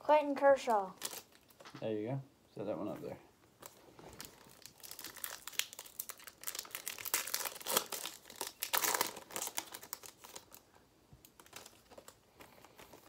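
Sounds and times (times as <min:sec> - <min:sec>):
wrapper crinkling and tearing: 0:00.9 - 0:01.7, 0:03.6 - 0:13.0.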